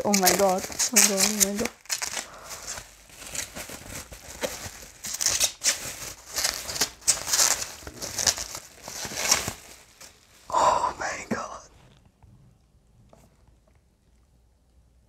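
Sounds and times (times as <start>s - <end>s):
bubble wrap crinkling: 0.0s - 11.8s.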